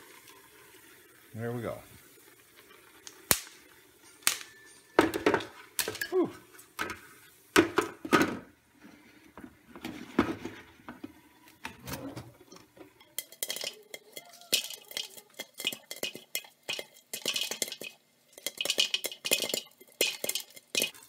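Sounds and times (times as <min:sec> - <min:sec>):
popcorn popping against plastic lid: 0:04.2 - 0:06.0, 0:13.2 - 0:21.0.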